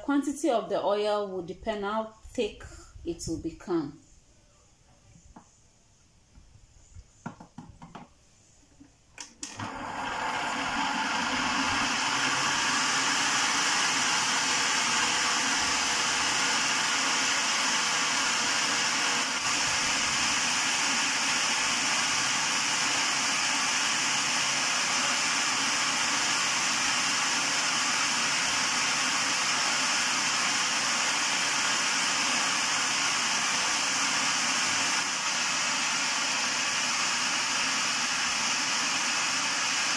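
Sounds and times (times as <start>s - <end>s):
food processor motor running: 9.3s - 39.9s.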